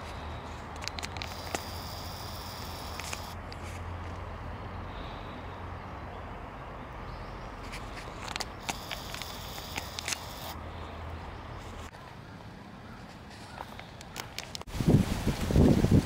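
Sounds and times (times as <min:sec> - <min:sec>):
wind on microphone rumble: 0:14.7 - 0:16.0.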